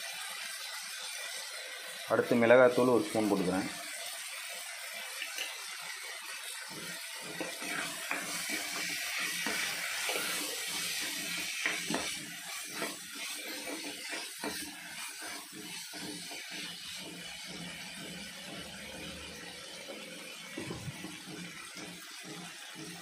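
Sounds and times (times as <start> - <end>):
food sizzling in a pan: 0.0 - 23.0
spatula scraping and knocking pan: 6.6 - 23.0.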